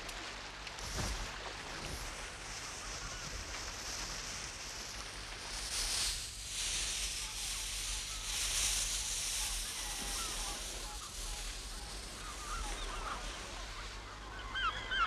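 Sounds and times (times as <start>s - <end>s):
surf washing over rocks: 0.0s - 14.3s.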